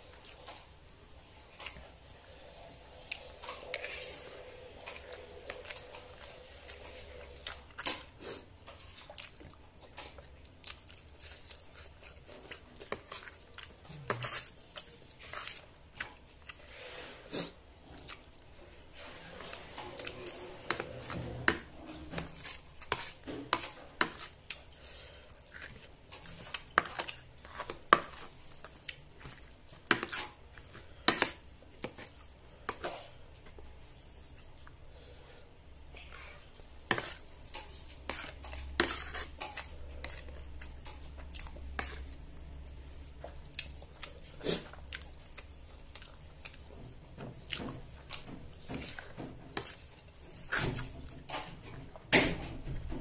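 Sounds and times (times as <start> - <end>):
chewing: 1.5 - 16.7, 35.9 - 51.9
cutlery scraping plastic plate: 29.2 - 30.4, 36.9 - 40.3.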